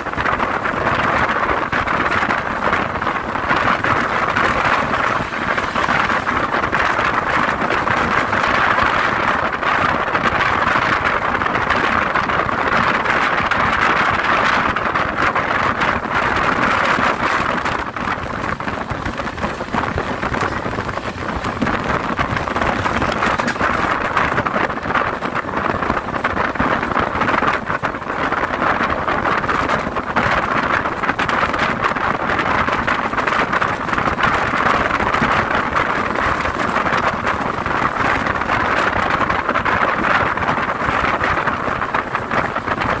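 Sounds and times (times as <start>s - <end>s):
rushing wind from train window: 0.0s - 43.0s
train wheels on rails: 0.0s - 43.0s.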